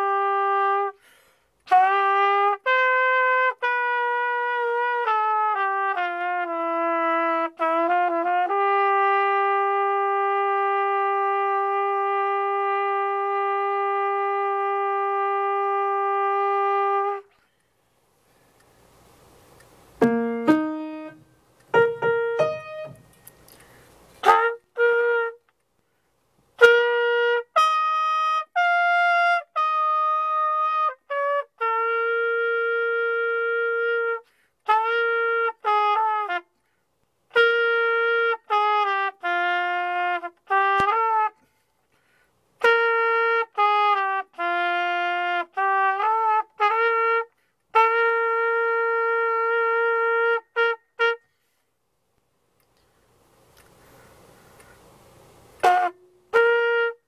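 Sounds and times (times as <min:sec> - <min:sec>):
trumpet playing held notes: 0:00.0 - 0:17.4, 0:19.3 - 0:25.6, 0:26.5 - 0:41.7, 0:42.6 - 0:51.5, 0:55.3 - 0:57.0
piano notes: 0:20.0 - 0:23.3.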